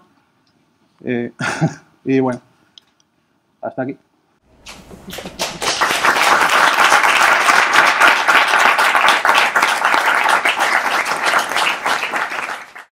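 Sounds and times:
audience applauding: 4.7 - 12.9.

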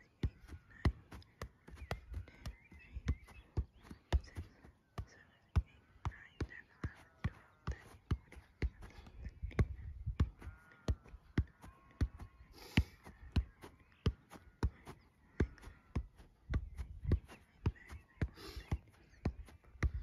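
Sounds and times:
foot kicking football: 9.5 - 20.0.

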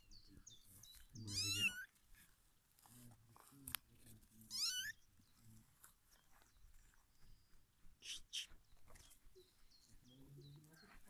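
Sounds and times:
kitten mewing: 1.3 - 1.9, 4.5 - 4.9.

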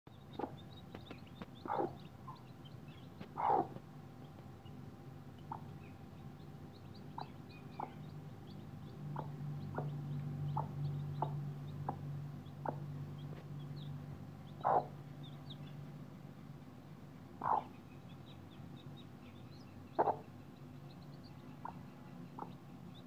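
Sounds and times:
chicks peeping: 0.1 - 23.0
hen clucking: 0.2 - 4.5, 5.4 - 15.7, 17.4 - 18.2, 19.9 - 22.6.

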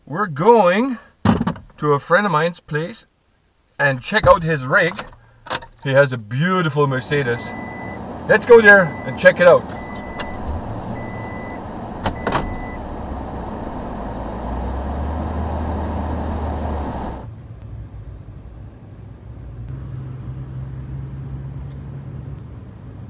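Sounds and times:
road noise inside vehicle: 3.8 - 23.0
engine running: 6.8 - 17.3
reverse warning beep: 7.2 - 14.2.

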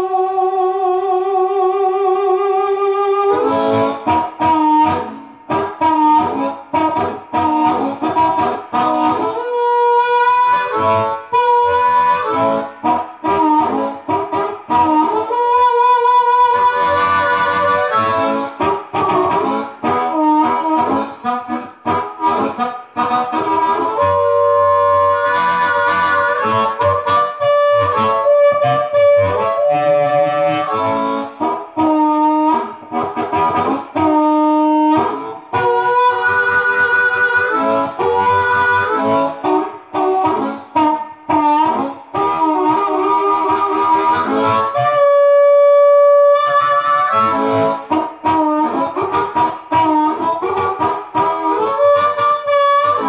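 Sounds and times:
amplified blues harmonica: 0.0 - 53.0.

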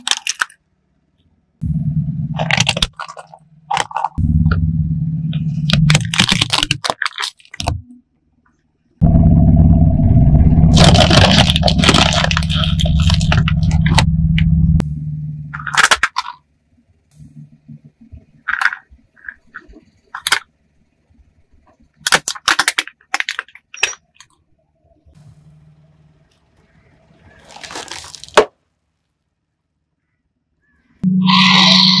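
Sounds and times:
plastic toys cracking under tyre: 0.0 - 0.6, 2.4 - 4.2, 5.5 - 7.8, 10.7 - 14.1, 15.6 - 16.4, 18.4 - 20.5, 22.0 - 24.4, 27.3 - 28.6
low rumble: 1.6 - 6.4, 9.0 - 15.7.

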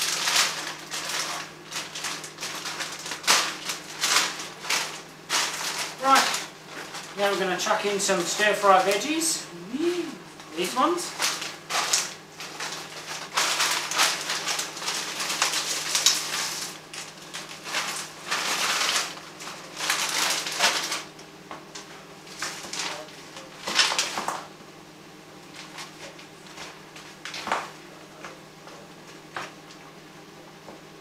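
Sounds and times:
plastic bag crinkling: 0.0 - 9.3, 10.5 - 21.2.

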